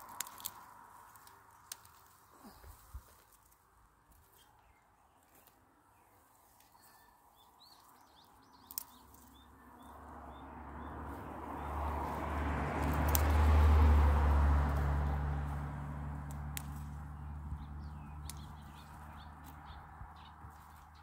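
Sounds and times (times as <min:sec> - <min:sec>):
small birds chirping: 0:00.0 - 0:12.2, 0:16.2 - 0:21.0
distant engine hum: 0:07.7 - 0:21.0.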